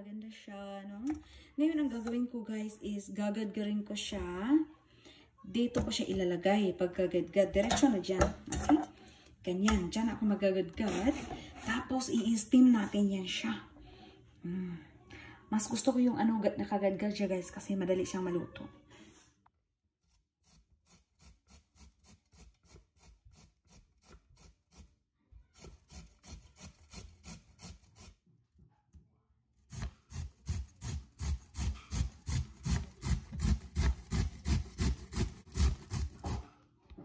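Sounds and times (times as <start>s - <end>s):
beet grating on a grater: 20.0s - 24.9s, 25.6s - 28.2s, 29.7s - 36.5s.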